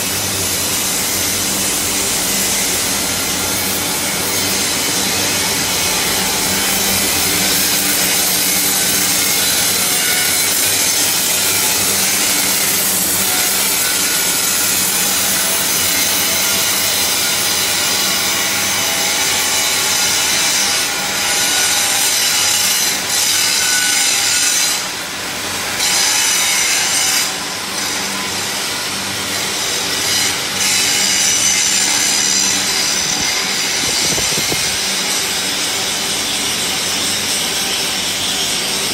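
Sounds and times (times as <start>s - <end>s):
angle grinders grinding steel: 29.3s - 38.9s.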